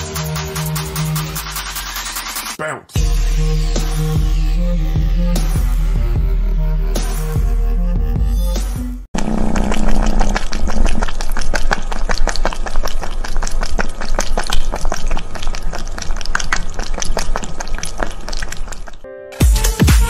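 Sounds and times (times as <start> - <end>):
cat lapping water: 9.2 - 19.1.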